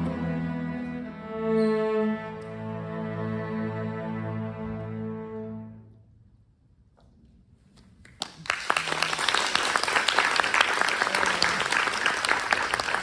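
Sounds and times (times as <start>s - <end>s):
audience applause: 8.1s - 13.0s.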